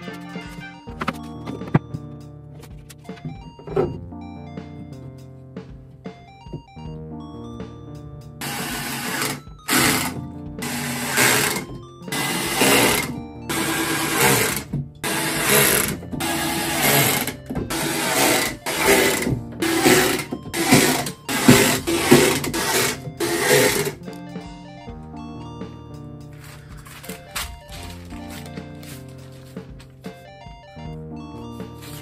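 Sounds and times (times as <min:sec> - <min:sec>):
power drill driving screws: 0:08.4 - 0:24.0.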